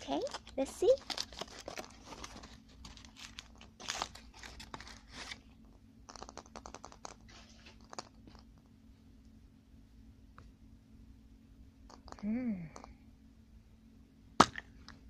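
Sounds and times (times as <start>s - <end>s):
foil wrapper crinkling and tearing: 0.1s - 5.4s.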